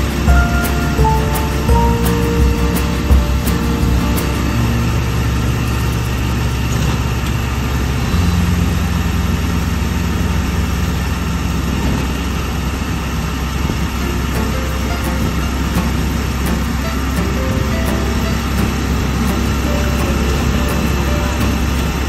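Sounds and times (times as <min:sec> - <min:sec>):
vehicle engine drone: 0:00.0 - 0:22.0.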